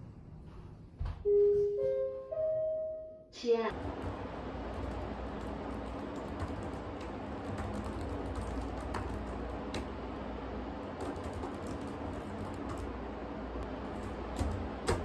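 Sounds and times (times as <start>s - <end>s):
laptop keyboard typing: 3.7s - 13.0s, 13.6s - 15.0s.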